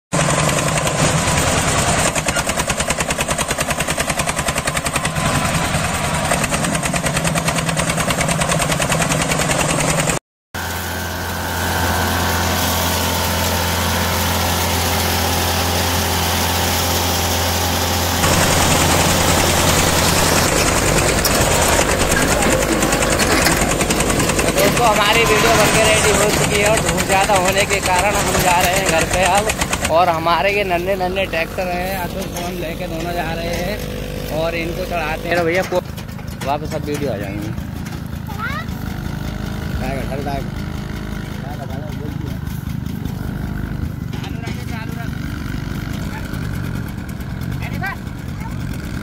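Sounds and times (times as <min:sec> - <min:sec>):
small tractor engines chugging: 0:00.2 - 0:49.0.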